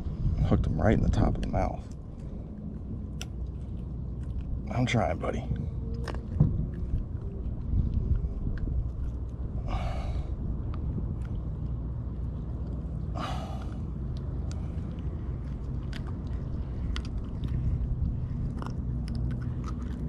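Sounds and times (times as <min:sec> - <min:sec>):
steady low rumble: 0:00.0 - 0:20.0
clicks and scrapes of handling fish: 0:14.5 - 0:20.0.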